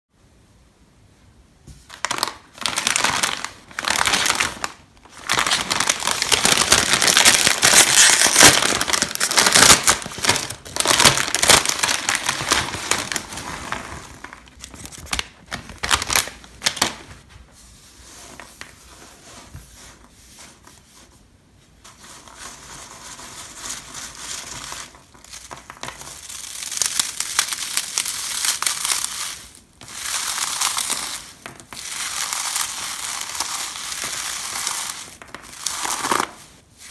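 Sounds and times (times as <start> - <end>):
cheese puffs crushed in hands: 1.9 - 17.0, 24.8 - 36.4
plastic snack bag crinkling: 1.9 - 17.3, 22.9 - 36.9.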